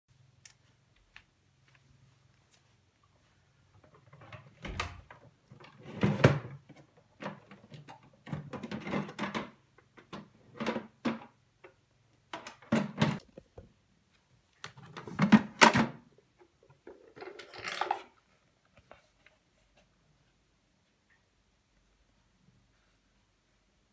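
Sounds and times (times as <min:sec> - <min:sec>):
plastic parts clunking and rattling: 0:03.8 - 0:13.7, 0:14.6 - 0:18.3.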